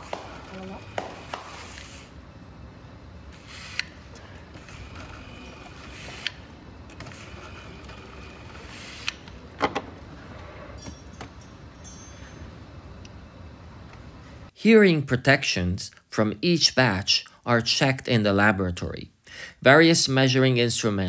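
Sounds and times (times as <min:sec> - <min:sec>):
factory room noise: 0:00.0 - 0:14.6.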